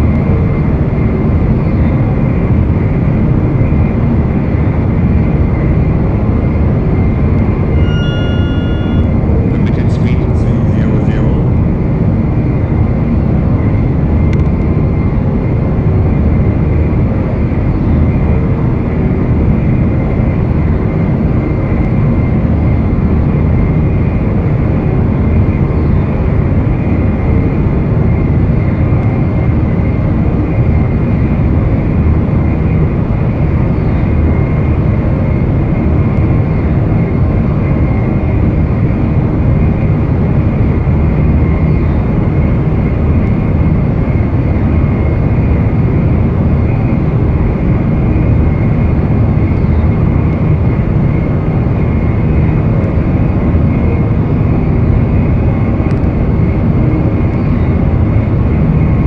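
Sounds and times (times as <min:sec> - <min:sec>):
vehicle rumbling roar: 0:06.0 - 0:12.9
faint high tone: 0:07.7 - 0:11.5.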